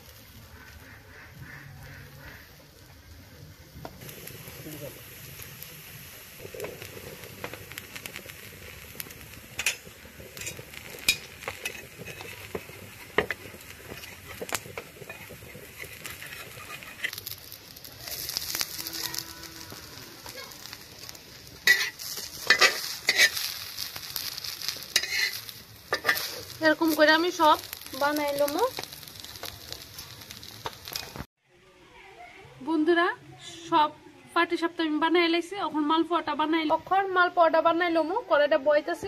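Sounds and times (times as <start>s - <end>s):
crepe sizzling on hot pan: 0.0s - 31.4s
metal spatula scraping pan: 9.6s - 17.2s, 21.6s - 23.6s, 24.2s - 26.6s.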